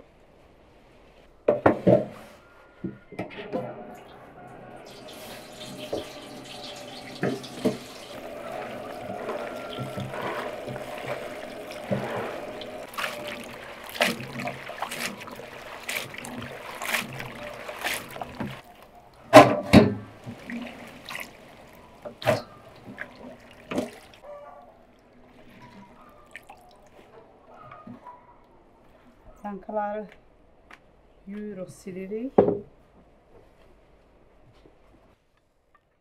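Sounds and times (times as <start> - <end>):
water splashes: 4.0 - 24.3, 25.0 - 27.1
tap water running into basin: 4.8 - 18.8, 19.4 - 24.2
hands swishing beans in water: 4.9 - 18.9, 20.1 - 24.2.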